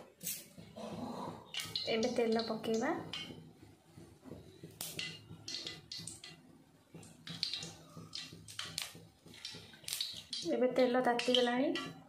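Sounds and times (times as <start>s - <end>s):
oil pouring and splashing: 7.1s - 10.6s.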